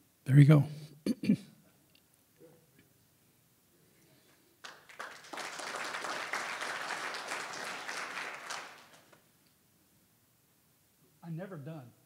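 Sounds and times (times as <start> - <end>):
audience applauding: 4.6 - 9.2.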